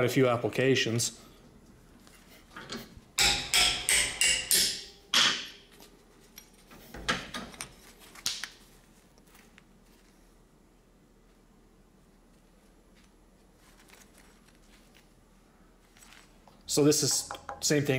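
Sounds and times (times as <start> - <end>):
ringing metal clanks: 2.6 - 5.6.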